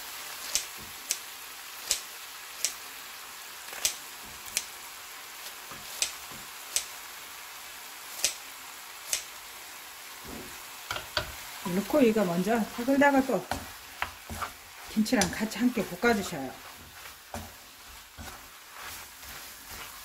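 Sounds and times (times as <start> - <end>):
scissors snipping cabbage: 0.4 - 1.2, 1.8 - 2.8, 3.7 - 4.7, 5.8 - 7.0, 8.2 - 8.4, 9.1 - 9.3.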